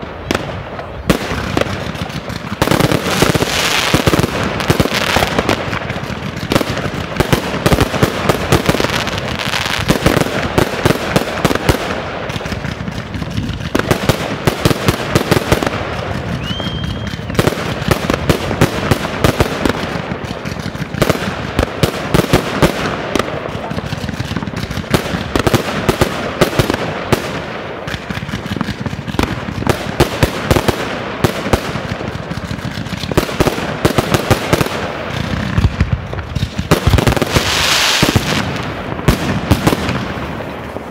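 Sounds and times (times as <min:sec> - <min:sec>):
fireworks bangs and crackling: 0:00.0 - 0:40.9
firework whistle: 0:16.2 - 0:17.8.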